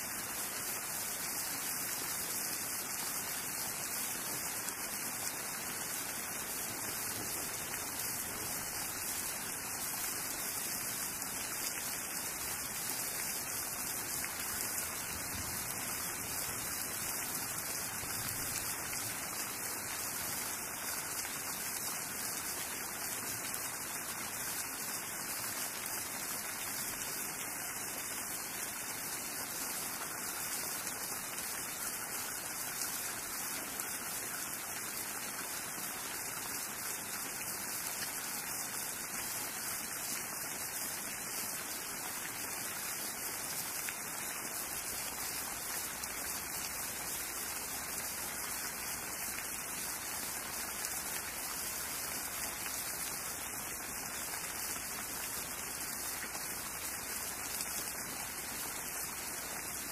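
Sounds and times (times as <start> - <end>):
steady rain hiss: 0.0 - 59.9.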